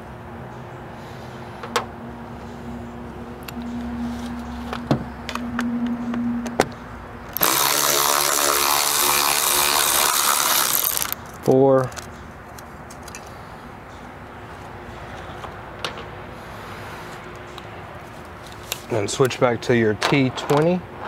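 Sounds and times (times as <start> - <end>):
electric ratchet running: 7.3 - 11.2.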